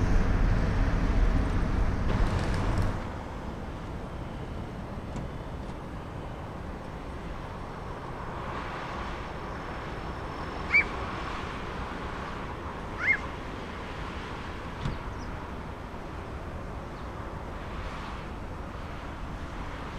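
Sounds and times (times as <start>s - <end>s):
distant jet engines rumbling: 0.0s - 19.9s
bird chirp: 10.7s - 11.0s, 13.0s - 13.3s.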